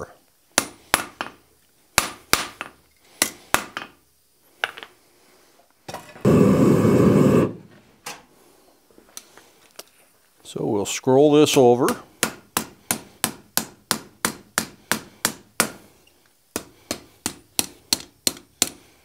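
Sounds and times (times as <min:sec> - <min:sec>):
loud rushing noise: 0:06.3 - 0:07.7.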